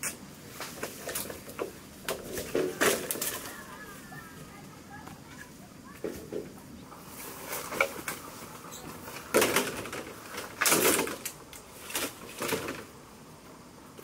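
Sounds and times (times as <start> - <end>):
bamboo poles scraping and knocking: 0.0 - 4.0, 6.0 - 13.0.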